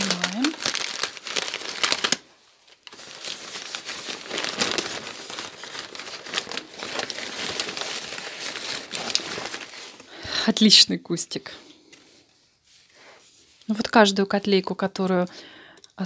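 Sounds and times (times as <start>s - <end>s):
packing paper crinkling: 0.0s - 10.3s.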